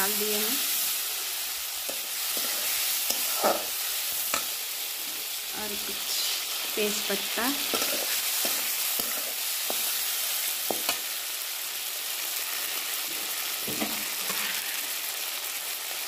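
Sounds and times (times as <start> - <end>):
vegetables sizzling in hot oil: 0.0 - 16.0
metal spatula scraping a pan: 1.8 - 4.8, 7.6 - 11.1, 13.8 - 14.7.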